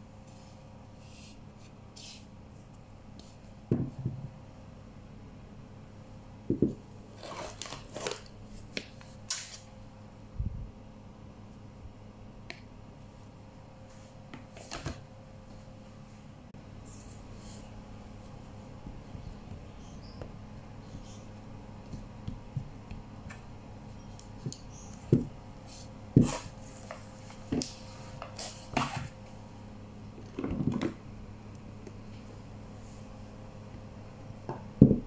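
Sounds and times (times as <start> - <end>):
scraping and brushing: 25.1 - 29.2.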